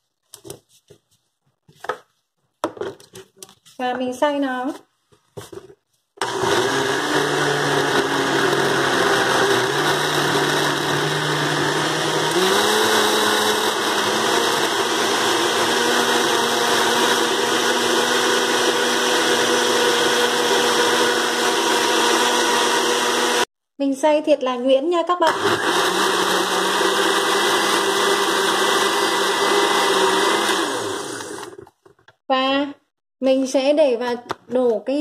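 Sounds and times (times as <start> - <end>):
blender running: 6.2 - 23.5, 25.2 - 31.7.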